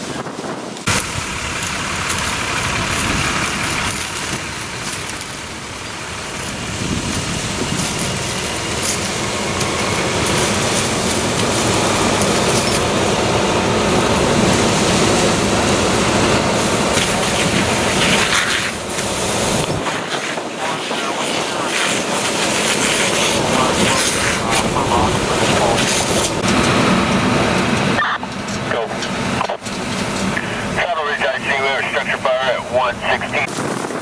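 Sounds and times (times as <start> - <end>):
fire engine droning: 0.0 - 34.0
hose spraying water: 0.9 - 13.1, 14.1 - 26.5.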